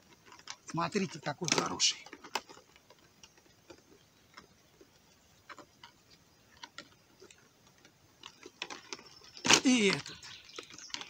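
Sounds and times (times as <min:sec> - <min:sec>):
crayfish clicking and tapping in trap: 0:00.2 - 0:03.8, 0:07.8 - 0:11.0.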